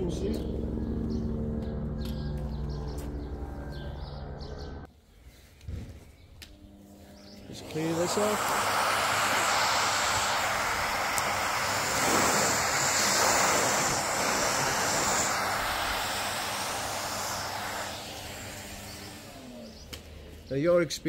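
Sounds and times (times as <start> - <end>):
vacuum cleaner sucking dust: 7.4 - 20.6.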